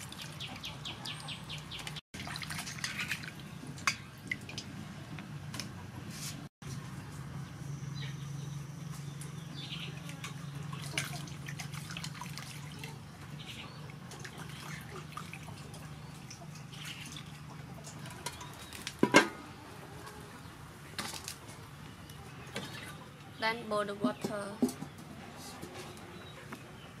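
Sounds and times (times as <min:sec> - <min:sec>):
water splashing in metal bowl: 0:01.8 - 0:04.7, 0:10.0 - 0:13.0.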